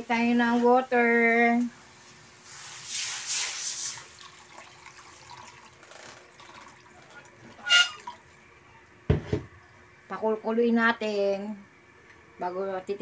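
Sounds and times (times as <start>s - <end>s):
water pouring into pan: 2.4s - 8.3s.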